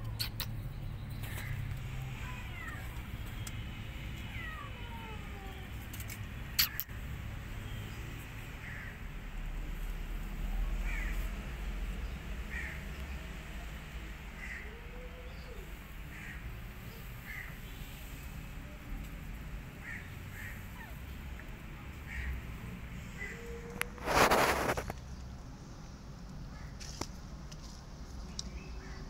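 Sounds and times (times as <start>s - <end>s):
short bird calls: 6.5s - 6.9s.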